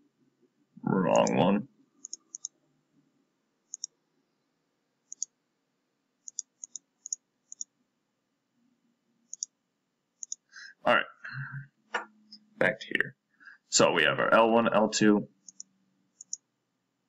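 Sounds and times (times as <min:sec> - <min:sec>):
computer mouse button clicking: 0:02.0 - 0:02.5, 0:03.7 - 0:03.9, 0:05.1 - 0:05.3, 0:09.3 - 0:09.5, 0:15.5 - 0:16.4.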